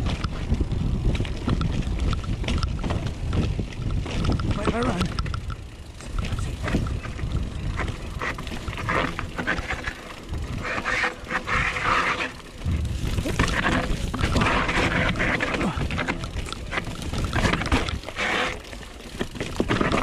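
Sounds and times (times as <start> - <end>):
wind buffeting microphone: 0.0 - 18.2
bike frame and chain clattering: 0.0 - 20.0
bike tyres rolling over rock: 0.0 - 20.0.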